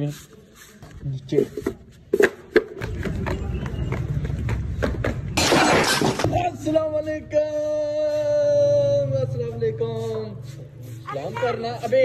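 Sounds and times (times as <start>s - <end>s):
footfalls on concrete stairs: 1.5s - 6.4s.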